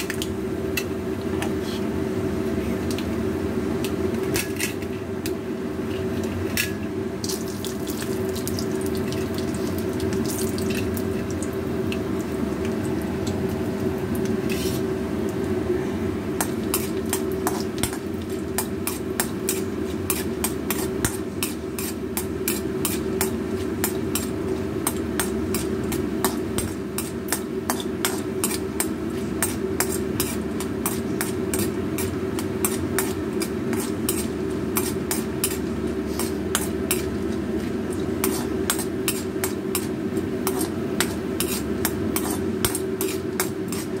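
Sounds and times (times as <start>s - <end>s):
steady hum: 0.0s - 44.0s
oil sizzling: 6.9s - 15.6s, 16.2s - 44.0s
metal ladle scraping and stirring: 14.4s - 14.9s, 27.7s - 39.8s, 40.4s - 41.6s, 42.2s - 44.0s.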